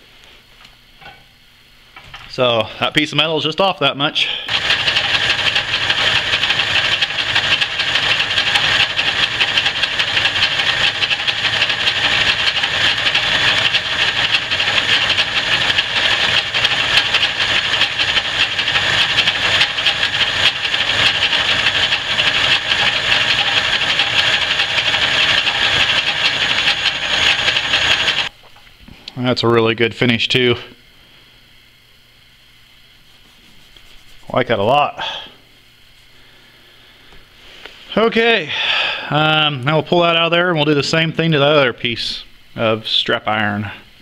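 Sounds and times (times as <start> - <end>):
lathe running: 4.4 - 28.3
lathe tool cutting steel: 4.5 - 28.3.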